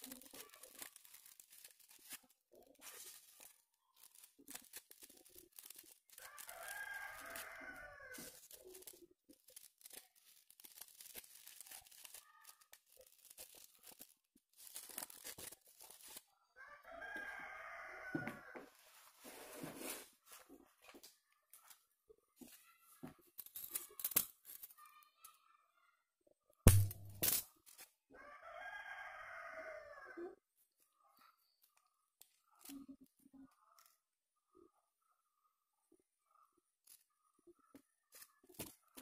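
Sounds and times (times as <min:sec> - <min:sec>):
crepe paper rustling: 0:00.0 - 0:16.3, 0:18.8 - 0:21.8, 0:38.1 - 0:39.0.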